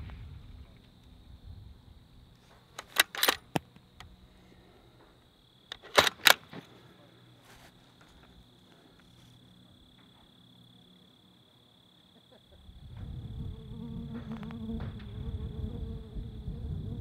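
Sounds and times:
rifle bolt metallic clicks: 2.8s - 4.1s, 5.7s - 6.5s.

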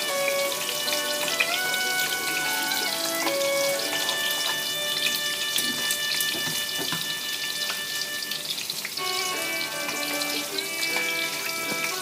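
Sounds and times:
tofu sizzling in hot oil: 0.0s - 12.0s.

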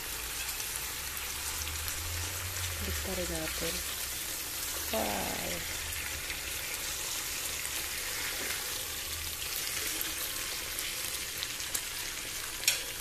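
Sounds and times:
meat sizzling in a frying pan: 0.0s - 13.0s
metal tongs clacking on pan: 12.6s - 13.0s.

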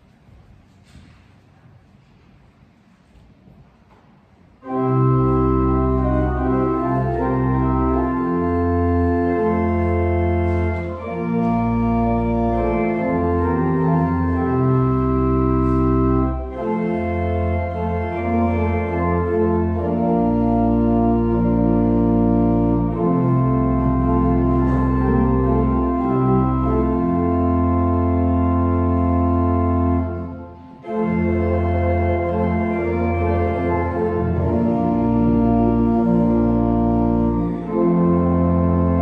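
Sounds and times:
church organ playing a hymn: 4.6s - 39.0s.

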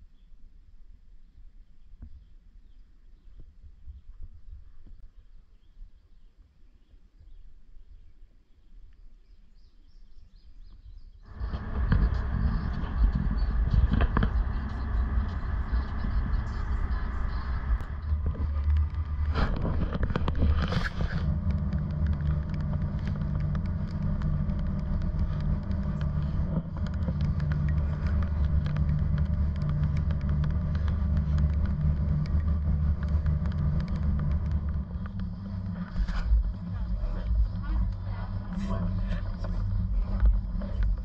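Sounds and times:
wind on microphone: 10.9s - 41.0s
ferry engines droning: 11.3s - 41.0s.

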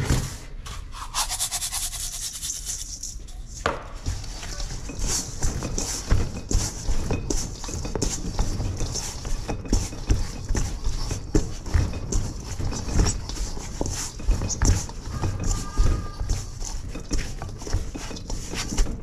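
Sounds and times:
sticky dough squelching: 4.0s - 19.0s.

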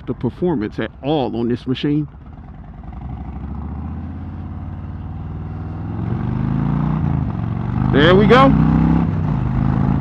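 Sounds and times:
motorcycle engine accelerating: 2.1s - 10.0s.

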